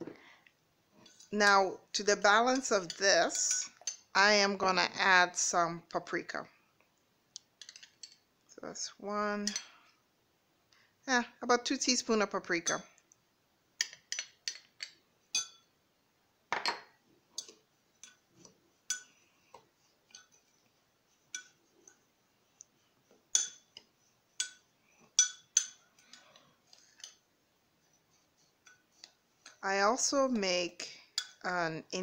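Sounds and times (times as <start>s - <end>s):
spoon clinking against glass: 13.8s - 15.7s, 23.3s - 23.7s, 25.2s - 26.2s.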